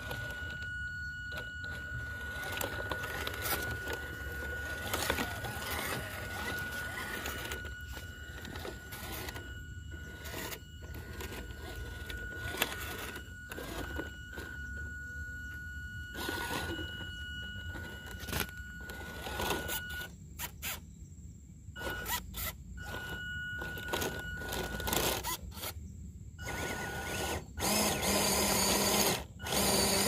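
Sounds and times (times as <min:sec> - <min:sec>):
rc car motor whine: 0:00.0 - 0:20.9, 0:21.8 - 0:30.0
knocks and scrapes over rough ground: 0:01.3 - 0:14.9.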